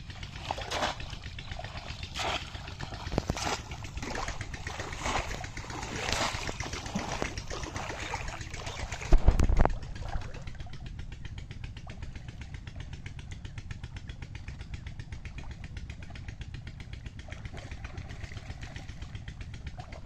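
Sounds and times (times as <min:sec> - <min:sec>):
fish trap splashing into water: 0:00.3 - 0:10.3.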